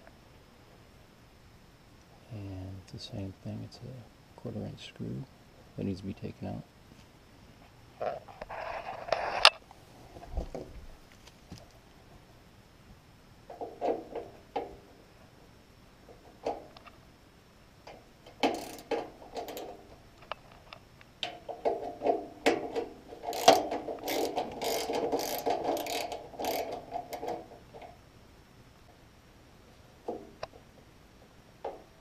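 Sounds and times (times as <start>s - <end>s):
socket ratchet clicking: 18.3s - 19.7s, 23.2s - 27.3s.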